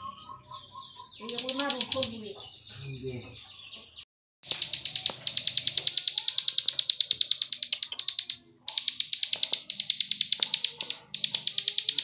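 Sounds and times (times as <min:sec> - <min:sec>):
bird clicking song: 0:00.0 - 0:02.6, 0:04.4 - 0:12.0.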